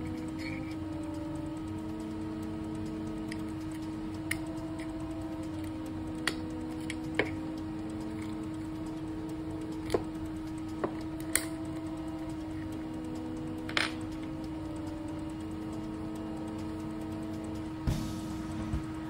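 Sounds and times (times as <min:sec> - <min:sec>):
small parts clicking on metal punch: 0:00.0 - 0:00.8, 0:03.2 - 0:14.3
steady hum: 0:00.0 - 0:19.0.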